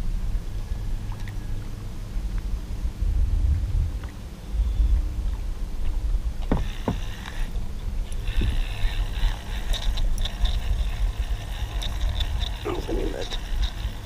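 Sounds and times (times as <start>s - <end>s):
low rumble on open water: 0.0s - 14.0s
sharp knocks: 6.5s - 7.0s
spinning reel whirring: 6.5s - 14.0s.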